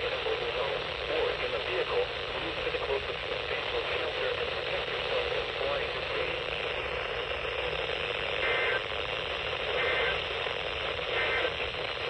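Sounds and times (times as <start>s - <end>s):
radio static hiss: 0.0s - 12.0s
two-tone data bursts: 6.3s - 12.0s.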